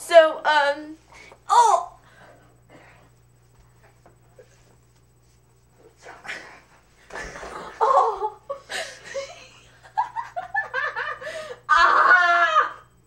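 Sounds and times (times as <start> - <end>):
girl laughing: 7.4 - 12.8.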